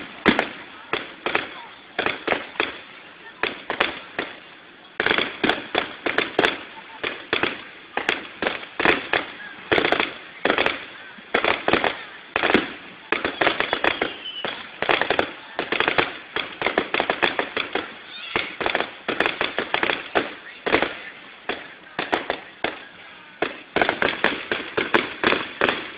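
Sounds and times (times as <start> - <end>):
fireworks bangs and crackling: 0.0 - 25.9.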